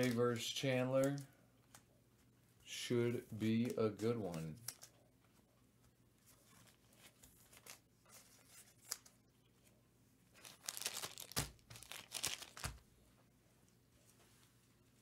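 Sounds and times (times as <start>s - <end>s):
packaging crinkling and rustling: 6.4s - 9.2s, 10.3s - 12.8s.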